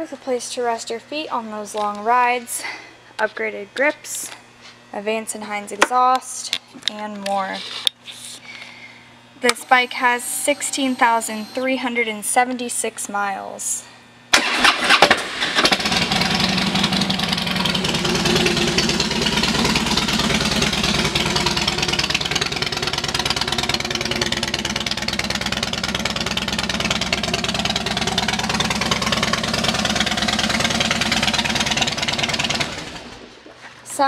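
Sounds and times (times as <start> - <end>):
motorcycle engine idling: 15.7 - 33.3.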